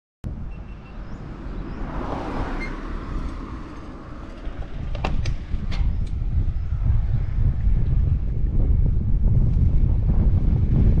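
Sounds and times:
wind rumbling on microphone: 0:00.2 - 0:11.0.

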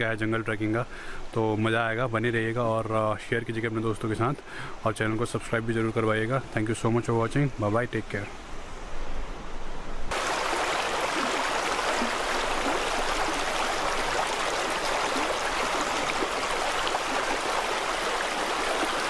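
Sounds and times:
stream flowing over stones: 0:10.1 - 0:19.0.

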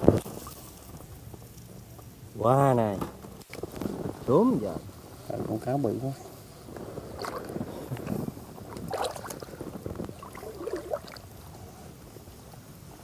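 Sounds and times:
water splashing against raft: 0:07.0 - 0:11.5.

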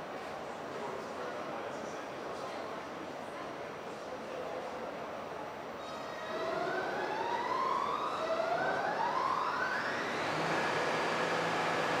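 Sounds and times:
subway train motors whining: 0:05.6 - 0:12.0.

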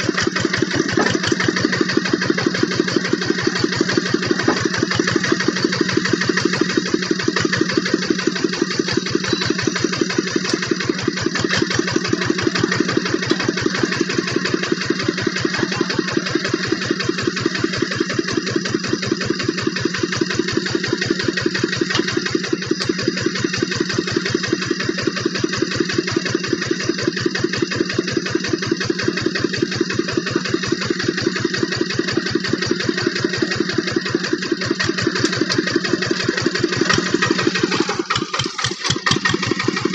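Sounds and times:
diesel tractor engine thudding: 0:00.0 - 0:25.6, 0:31.2 - 0:39.9.

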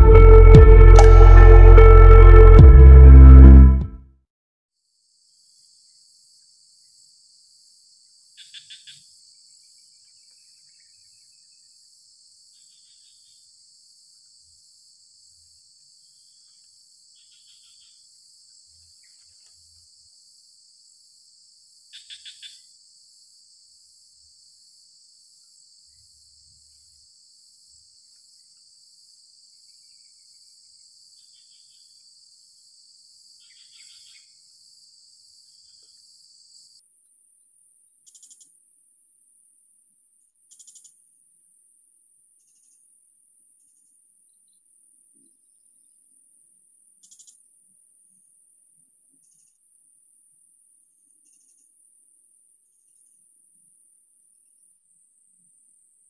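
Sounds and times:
short loud chirps: 0:00.0 - 0:04.0
insect chorus: 0:04.9 - 0:56.0.

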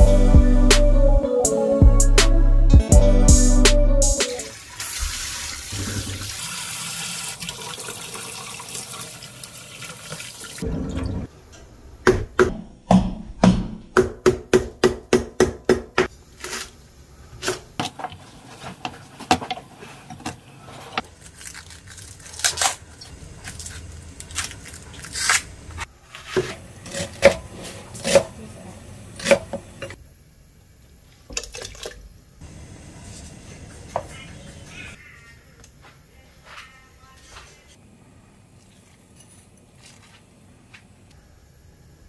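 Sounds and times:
water running from tap: 0:04.5 - 0:10.6.

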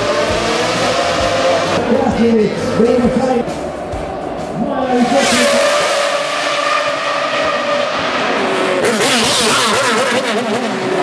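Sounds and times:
race car engine passing by: 0:04.4 - 0:11.0.

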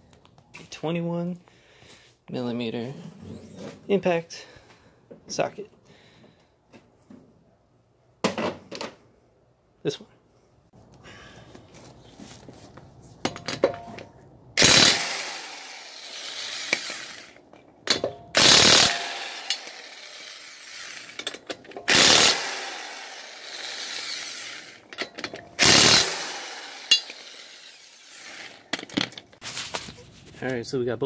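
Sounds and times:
impact wrench hammering lug nuts: 0:14.6 - 0:29.2.

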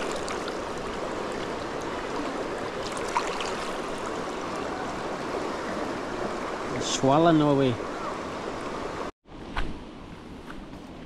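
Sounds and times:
stream water rushing: 0:00.0 - 0:09.1.

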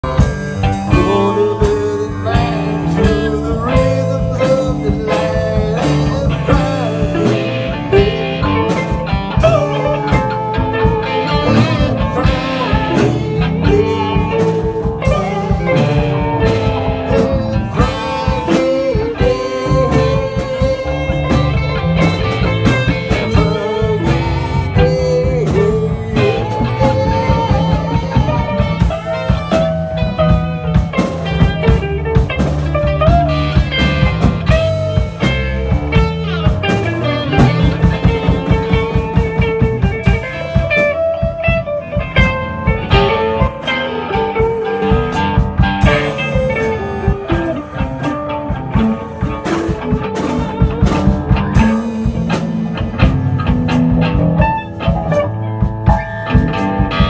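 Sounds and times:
man singing into a microphone: 0:00.0 - 0:30.8, 0:42.9 - 0:53.0
drum kit playing: 0:00.0 - 0:57.0
electric guitars: 0:00.0 - 0:57.0.

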